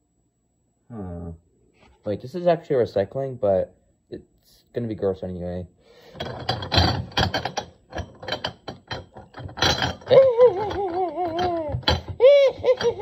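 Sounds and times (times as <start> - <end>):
items clattering in a recycling bin: 6.1 - 13.0.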